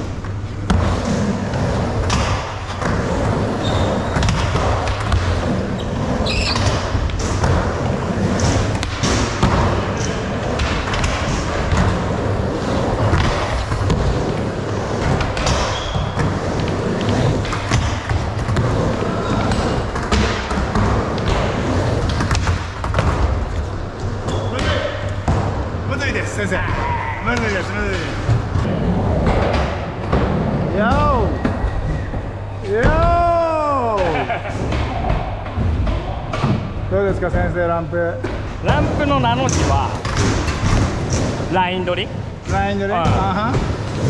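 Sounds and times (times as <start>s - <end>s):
skateboard wheels rumbling on ramp: 0.0s - 24.4s.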